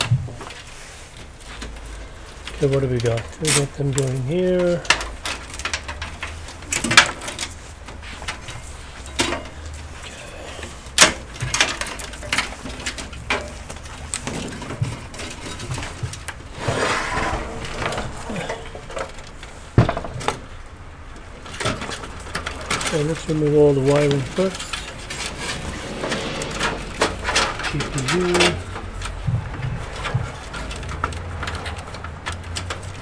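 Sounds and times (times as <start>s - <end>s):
rustling sliding sound: 0.4s - 2.4s, 6.2s - 9.1s, 11.9s - 19.8s, 22.7s - 29.1s.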